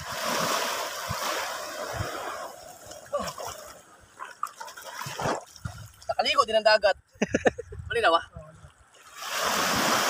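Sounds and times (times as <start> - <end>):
water splashing: 0.0 - 6.3, 8.4 - 10.0.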